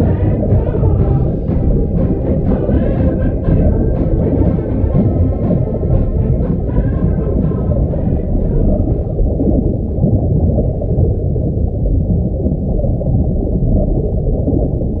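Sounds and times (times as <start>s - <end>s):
muffled music: 0.0s - 12.7s
underwater rumble and gurgling: 0.0s - 15.0s.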